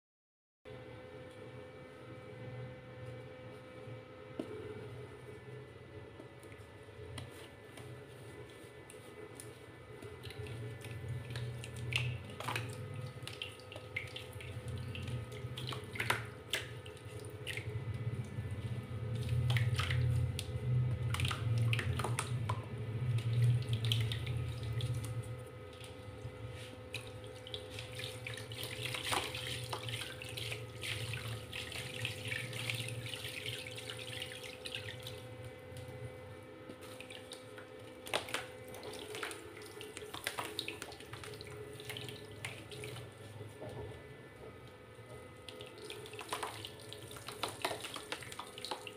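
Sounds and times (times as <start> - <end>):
hands churning water in basin: 7.2 - 43.6, 45.2 - 48.9
small splashes and clicks: 8.9 - 36.0, 36.7 - 43.2, 45.4 - 48.9.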